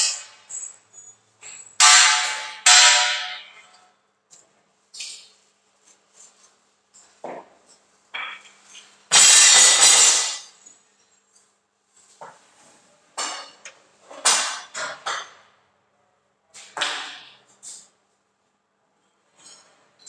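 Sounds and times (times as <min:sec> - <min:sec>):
metal clanks and knocks: 0:01.4 - 0:03.8, 0:13.2 - 0:15.5.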